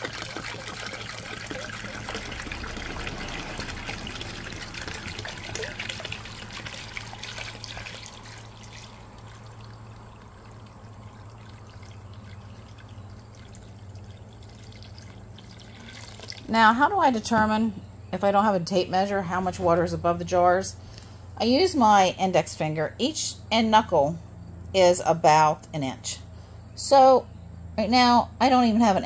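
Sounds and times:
water splashing over jar lids: 0:00.0 - 0:16.5
water pouring from a jug: 0:00.0 - 0:16.6.

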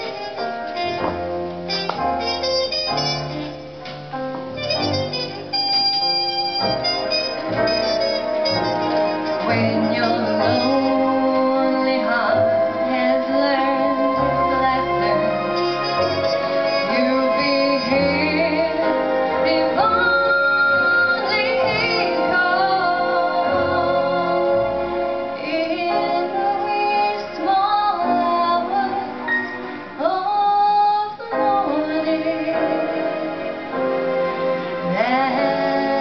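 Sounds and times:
instrumental accompaniment: 0:00.0 - 0:36.0
woman singing: 0:09.4 - 0:29.3, 0:30.0 - 0:33.6, 0:34.8 - 0:36.0.

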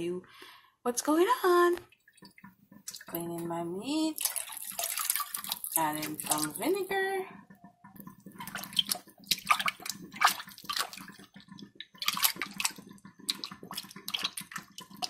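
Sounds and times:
meat splashing in bowl of water: 0:02.0 - 0:07.1, 0:08.2 - 0:15.0.

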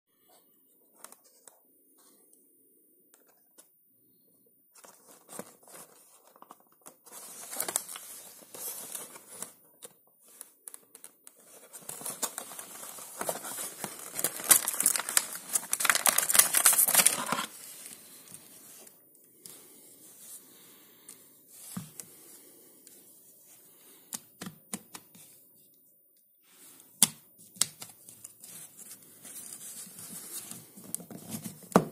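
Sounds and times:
cardboard packaging tearing: 0:12.0 - 0:17.6.

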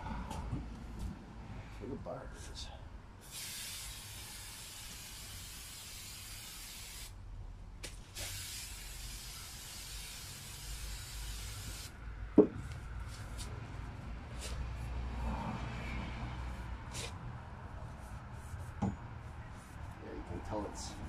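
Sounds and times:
aerosol spray hissing: 0:03.2 - 0:07.1, 0:08.2 - 0:11.9.

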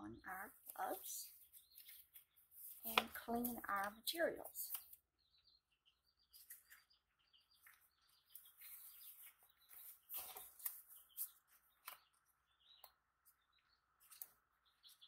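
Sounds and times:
gloves rustling: 0:00.5 - 0:05.0, 0:06.3 - 0:12.3.

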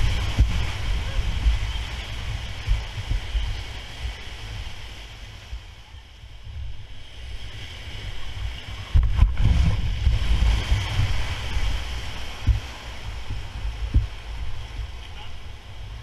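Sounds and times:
whitewater rapids rushing: 0:00.0 - 0:06.0
wind rumbling on microphone: 0:00.0 - 0:16.0.

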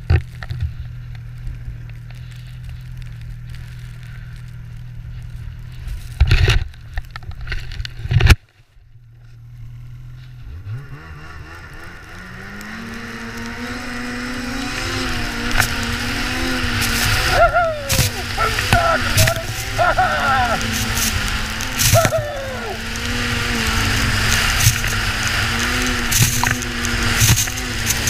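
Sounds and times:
snowmobile engine idling: 0:00.5 - 0:06.1, 0:09.0 - 0:28.0
snowmobile engine revving: 0:09.7 - 0:28.0.

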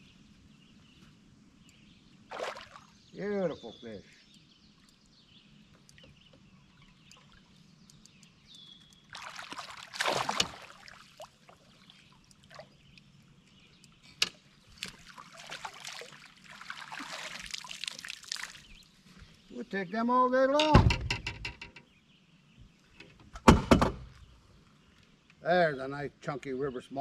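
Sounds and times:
fish splashing at water surface: 0:02.3 - 0:03.0, 0:09.1 - 0:12.7, 0:14.8 - 0:18.7
water sloshing and dripping: 0:02.3 - 0:03.0, 0:05.7 - 0:19.4.

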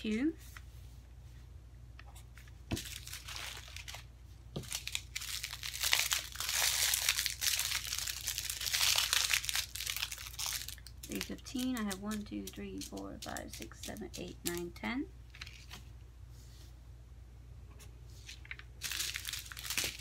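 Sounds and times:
plastic bags crinkling: 0:02.7 - 0:14.8, 0:18.4 - 0:20.0.

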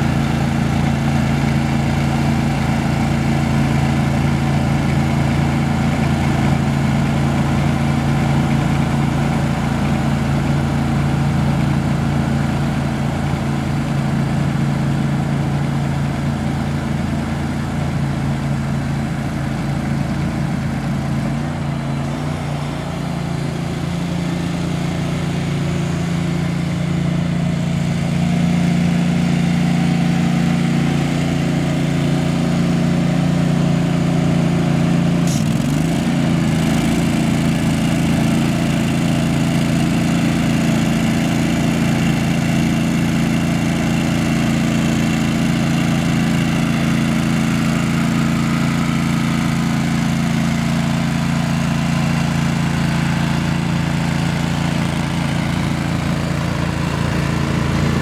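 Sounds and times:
aerator engine running: 0:00.0 - 0:58.0.

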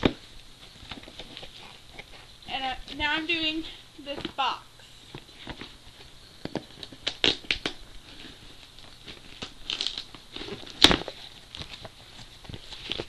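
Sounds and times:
cardboard box tearing and crinkling: 0:06.6 - 0:13.0.

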